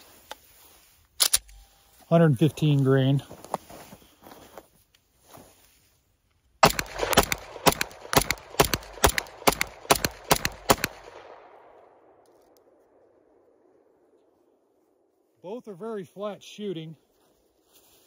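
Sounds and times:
pistol shots with echo: 0:06.6 - 0:12.2.

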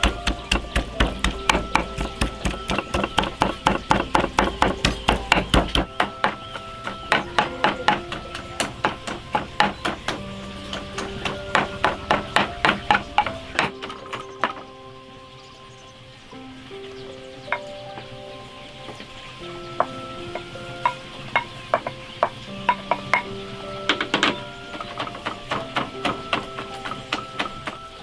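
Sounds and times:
pestle pounding in wooden mortar: 0:00.0 - 0:13.7
soft background music: 0:00.0 - 0:28.0.

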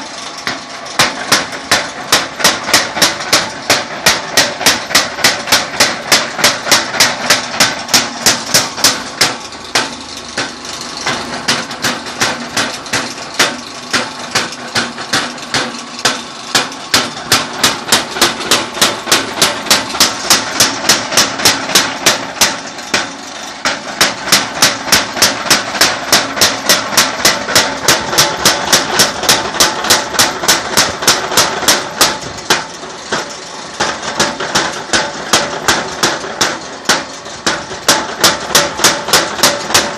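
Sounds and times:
machine hum: 0:00.0 - 0:39.9
power hammer striking iron: 0:00.0 - 0:39.9.

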